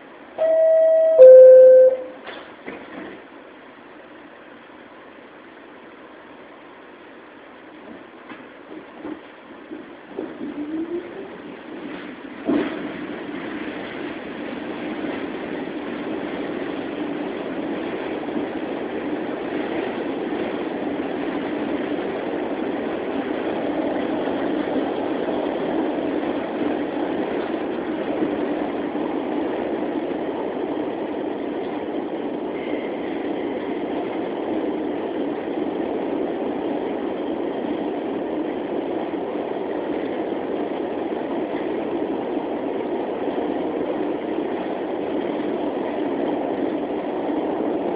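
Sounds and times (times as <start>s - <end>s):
train wheels rumbling on rails: 0.0s - 47.9s
faint high tone: 0.4s - 2.2s.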